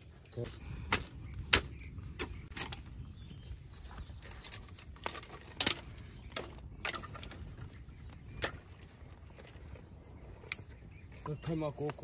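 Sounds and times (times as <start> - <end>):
campfire sticks snapping: 10.4 - 10.7.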